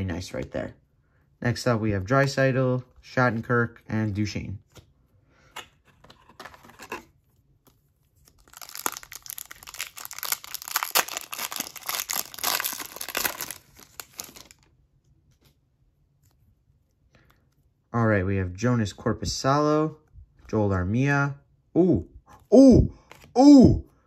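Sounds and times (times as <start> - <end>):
foil wrapper tearing and crinkling: 8.2 - 14.7.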